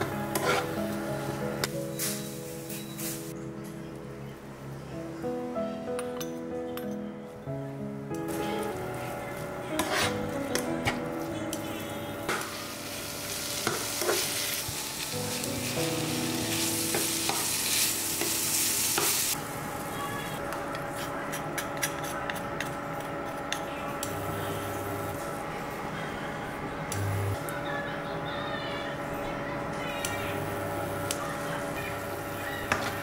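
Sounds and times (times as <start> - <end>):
metal spatula scraping pan: 0.3 - 0.7, 9.7 - 10.2
meat sizzling in a pan: 12.3 - 19.4.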